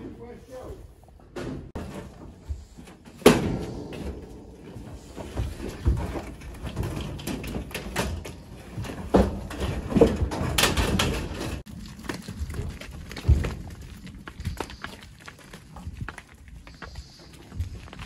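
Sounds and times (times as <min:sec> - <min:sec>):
steel gates and trailer clanking: 0:06.2 - 0:11.7.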